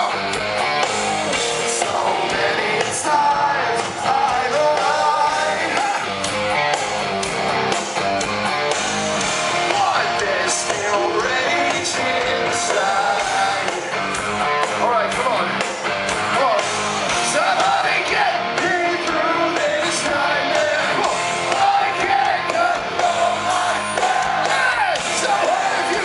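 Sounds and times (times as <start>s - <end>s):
distorted electric guitars: 0.0s - 26.0s
drums: 0.0s - 26.0s
singer's vocals: 1.4s - 6.2s, 9.4s - 15.6s, 16.3s - 26.0s.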